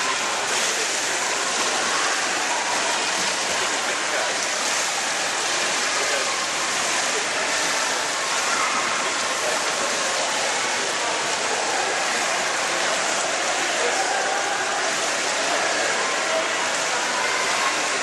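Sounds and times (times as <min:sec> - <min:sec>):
swimming pool water splashing: 0:00.0 - 0:18.0.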